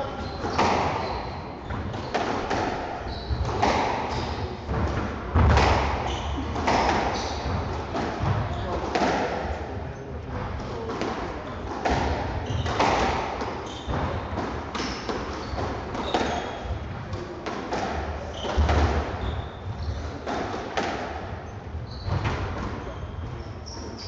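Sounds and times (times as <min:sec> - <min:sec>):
shoes squeaking on wooden floor: 0:00.0 - 0:04.8, 0:05.4 - 0:08.8, 0:11.5 - 0:16.8, 0:18.2 - 0:20.4, 0:21.4 - 0:24.0
squash ball hits: 0:00.1 - 0:09.5, 0:10.7 - 0:21.4.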